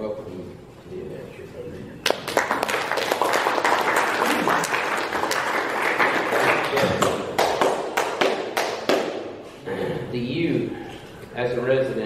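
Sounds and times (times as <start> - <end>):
audience applauding: 2.0 - 9.1
single claps: 2.0 - 9.3.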